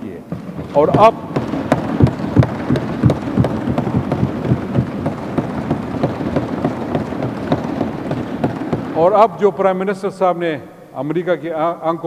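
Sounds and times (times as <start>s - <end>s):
people thumping on desks: 0.2s - 9.2s.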